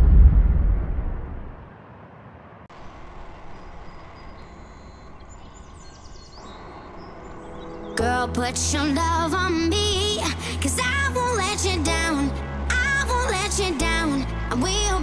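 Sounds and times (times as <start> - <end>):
loud boom: 0.0 - 1.7
rushing air noise: 0.0 - 1.8.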